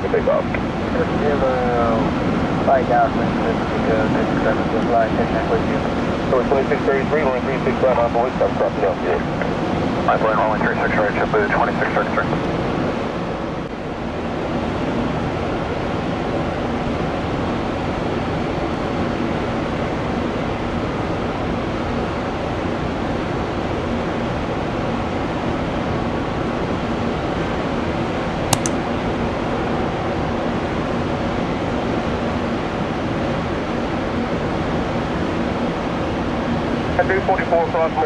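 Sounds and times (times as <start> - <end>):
rushing airport background noise: 0.0 - 38.0
sharp click: 28.5 - 28.8.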